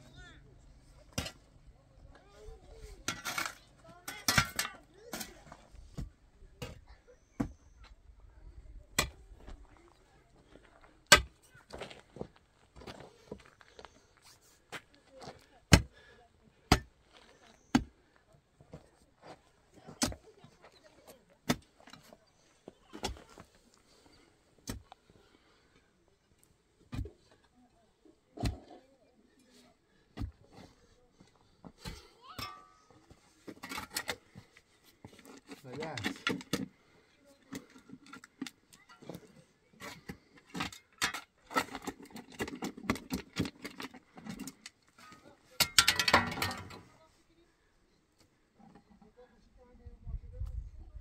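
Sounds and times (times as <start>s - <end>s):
faint scraping of earth: 0.0s - 49.5s
digging tool thudding into stony dirt: 11.1s - 11.4s, 15.7s - 16.0s, 16.7s - 17.0s, 19.9s - 20.3s, 21.4s - 22.0s, 26.9s - 27.2s, 28.4s - 28.8s, 30.1s - 30.4s, 44.3s - 46.8s
metal bar striking stone: 32.4s - 32.8s, 45.6s - 46.8s.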